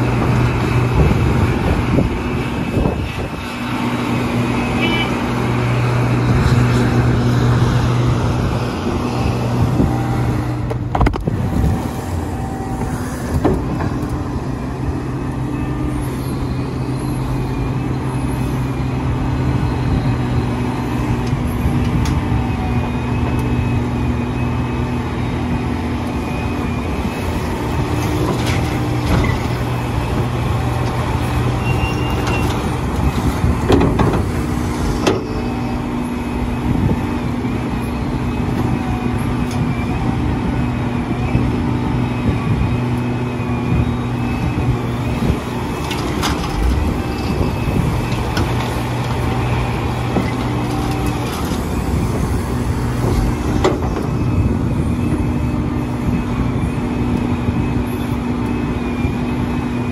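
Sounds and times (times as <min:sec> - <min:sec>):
excavator diesel engine droning: 0:00.0 - 0:59.9.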